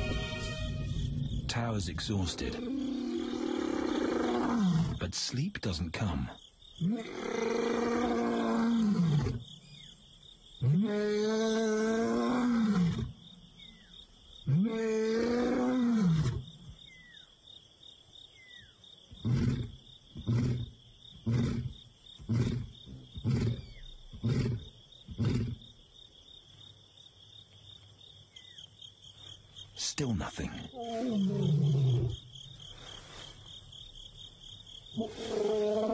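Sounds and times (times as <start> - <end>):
insects trilling: 0.0 - 35.9
lion roaring: 2.3 - 5.0, 6.8 - 9.4, 10.6 - 13.2, 14.5 - 16.4, 19.2 - 25.6, 30.7 - 32.3, 34.9 - 35.9
lion grunts: 19.2 - 25.7, 30.2 - 32.3, 34.9 - 35.9.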